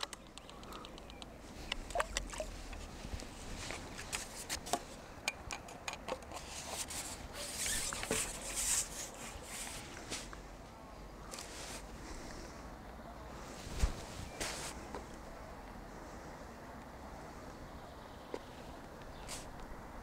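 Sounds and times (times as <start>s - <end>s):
fishing tackle clicks and taps: 0.0s - 2.9s, 3.7s - 6.4s
brief rustle: 6.3s - 10.4s, 13.6s - 15.1s, 19.2s - 19.6s.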